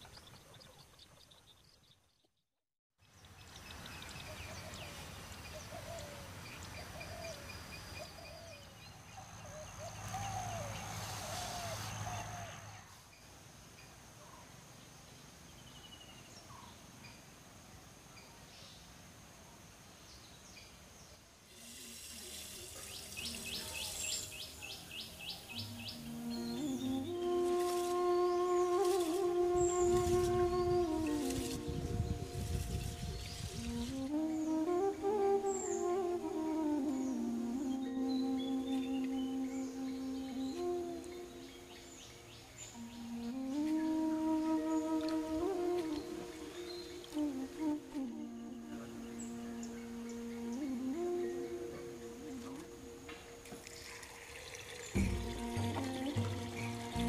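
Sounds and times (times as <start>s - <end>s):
birds chirping: 20.1s - 57.0s
rice pouring into clay pot: 21.5s - 24.2s, 53.6s - 56.2s
warbling bird call: 21.5s - 53.9s, 54.6s - 57.0s.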